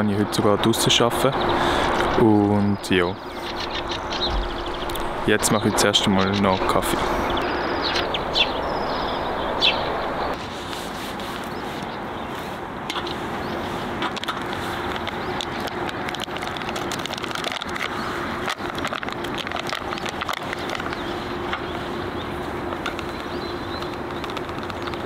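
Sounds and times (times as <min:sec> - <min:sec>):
steady background noise: 0:00.0 - 0:25.0
hand grinder crunching coffee beans: 0:14.0 - 0:21.7, 0:22.8 - 0:25.0.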